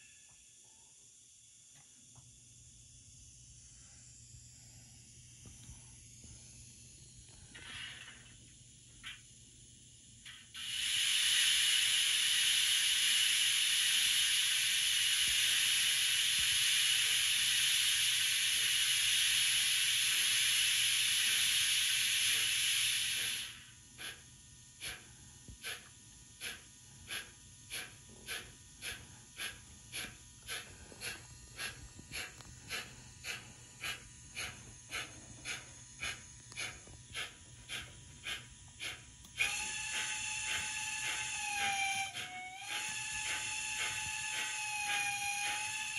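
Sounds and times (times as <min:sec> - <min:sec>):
loud steady steam hiss: 0:00.0 - 0:00.8, 0:01.7 - 0:45.9
model steam locomotive chuffing: 0:10.2 - 0:45.9
locomotive whistle: 0:39.4 - 0:45.9.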